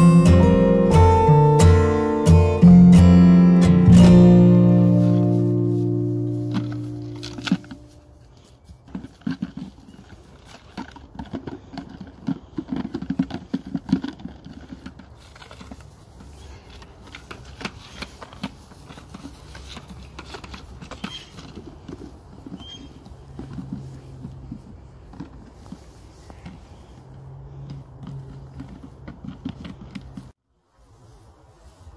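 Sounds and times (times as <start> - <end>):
puppy scratching at soil: 3.6 - 31.9.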